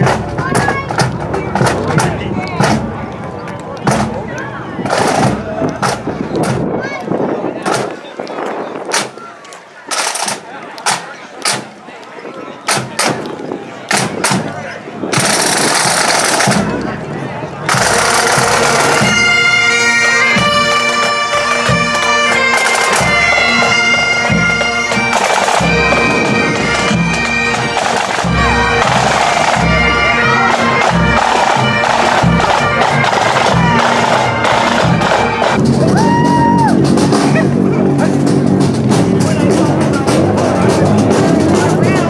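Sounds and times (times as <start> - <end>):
snare and tenor drums: 0.0 - 3.1, 3.8 - 6.8, 7.6 - 8.0, 8.9 - 9.2, 9.9 - 11.8, 12.6 - 42.0
string band playing: 0.0 - 42.0
bagpipes playing: 17.7 - 35.6.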